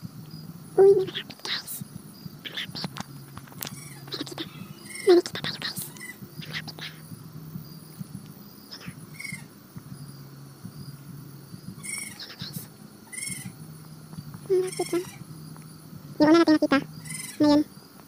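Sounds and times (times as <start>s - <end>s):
low steady hum: 0.0s - 18.0s
buzzy chirps of night creature: 2.4s - 3.0s, 3.7s - 7.1s, 8.6s - 9.5s, 11.8s - 13.7s, 14.5s - 15.4s, 16.2s - 17.7s.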